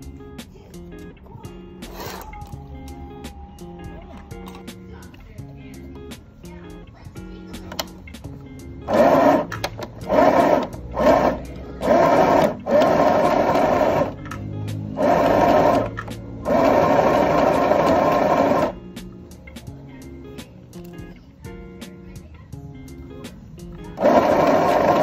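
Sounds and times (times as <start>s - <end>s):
sewing machine stitching: 8.9s - 14.2s, 14.9s - 18.8s, 24.0s - 25.0s.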